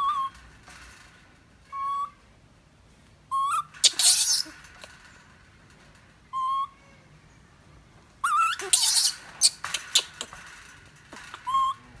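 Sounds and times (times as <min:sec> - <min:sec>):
scratchy rattle of chain-link fence: 0:00.0 - 0:02.2, 0:03.4 - 0:06.7, 0:08.3 - 0:12.0
baby monkey coo calls: 0:03.3 - 0:04.5, 0:08.2 - 0:10.2, 0:11.4 - 0:11.8.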